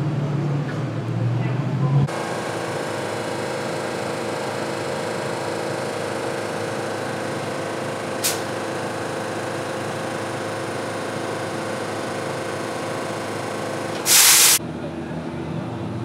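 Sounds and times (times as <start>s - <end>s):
air brake hiss: 8.2s - 8.5s, 14.0s - 14.6s.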